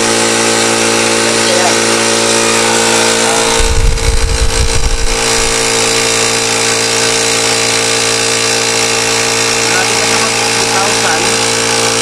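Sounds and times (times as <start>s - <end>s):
air compressor motor running: 0.0s - 12.0s
low rumbling thuds: 3.6s - 5.7s.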